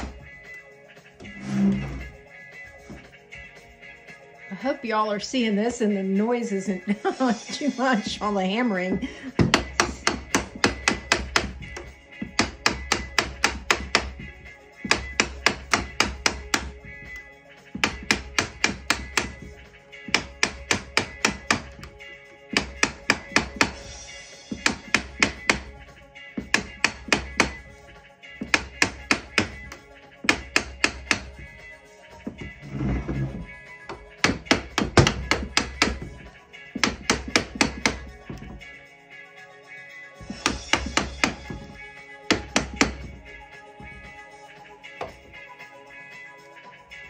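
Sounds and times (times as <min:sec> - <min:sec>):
mallet knocking on screwdriver: 0:09.4 - 0:14.2, 0:17.8 - 0:19.5, 0:20.1 - 0:21.9, 0:22.5 - 0:23.8, 0:24.5 - 0:25.7, 0:26.4 - 0:27.6, 0:28.4 - 0:31.4, 0:32.3 - 0:38.6, 0:40.3 - 0:43.1.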